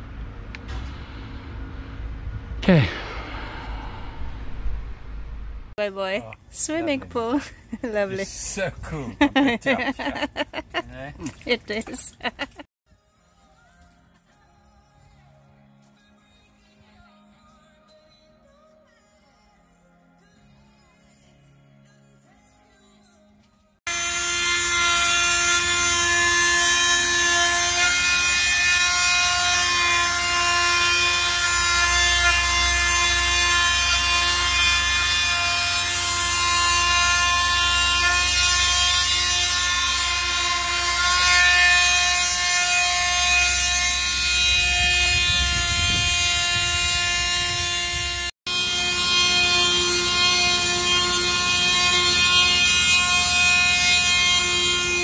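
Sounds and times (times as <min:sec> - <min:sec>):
power tool motor whining: 0:23.9 - 0:55.0.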